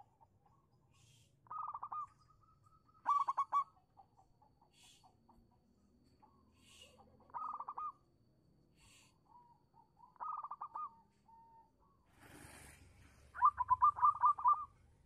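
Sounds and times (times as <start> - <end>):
dove cooing: 1.5 - 2.1, 3.0 - 3.7, 10.2 - 11.0, 13.3 - 14.7.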